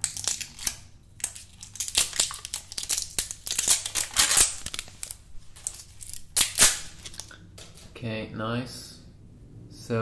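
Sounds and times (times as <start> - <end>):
plastic wrapping crinkling: 0.0 - 7.4.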